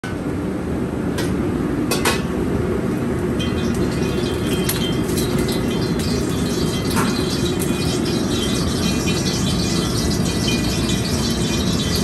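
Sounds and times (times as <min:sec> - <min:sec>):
wok burner roaring: 0:00.1 - 0:12.0
ladle clinking against wok: 0:03.4 - 0:12.0.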